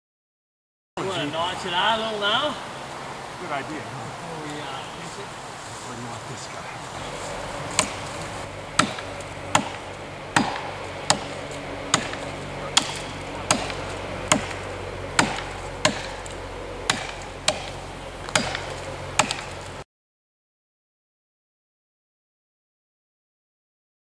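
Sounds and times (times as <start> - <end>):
axes chopping tree trunk: 7.6 - 19.8.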